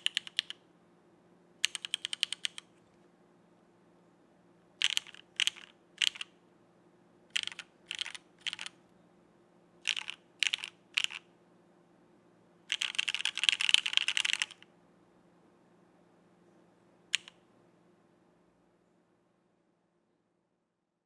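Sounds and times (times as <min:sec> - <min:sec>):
mechanical keyboard typing: 0:00.0 - 0:00.6, 0:01.6 - 0:02.7, 0:04.8 - 0:06.3, 0:07.3 - 0:08.8, 0:09.8 - 0:11.2, 0:12.7 - 0:14.6, 0:17.2 - 0:17.4.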